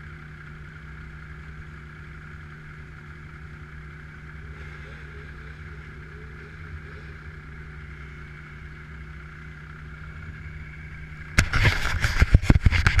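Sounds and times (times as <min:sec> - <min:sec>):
snowmobile engine idling: 0:00.0 - 0:13.0
hand rubbing camera rumble: 0:03.4 - 0:13.0.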